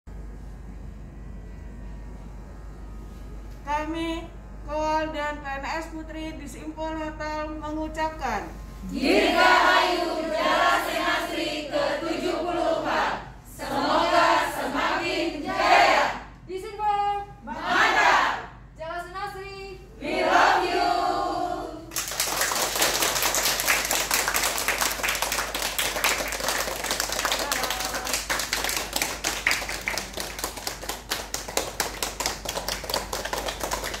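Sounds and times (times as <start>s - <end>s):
people clapping: 21.9s - 34.0s.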